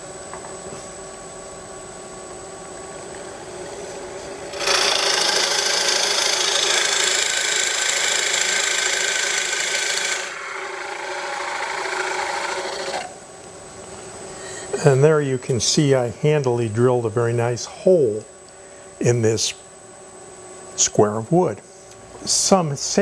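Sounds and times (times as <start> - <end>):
wood lathe humming: 3.0 - 13.2
drill bit boring into wood: 3.6 - 13.2.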